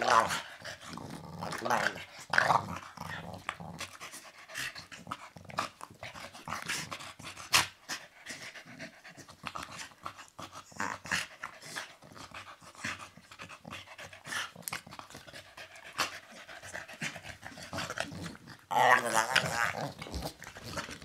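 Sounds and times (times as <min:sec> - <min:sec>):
dogs panting and huffing: 0:01.7 - 0:18.8.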